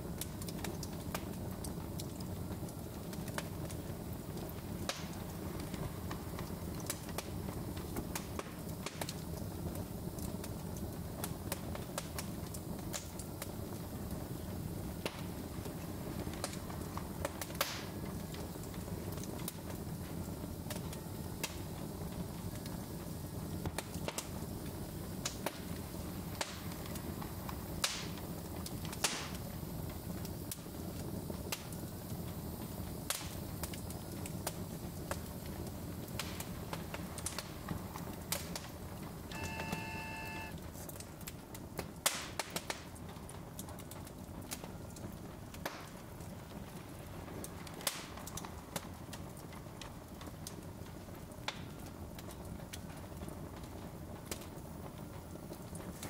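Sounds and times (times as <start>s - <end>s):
fire crackling and popping: 0.0s - 56.0s
fire low rumble: 0.0s - 56.0s
short multi-pitch toot: 39.3s - 40.6s.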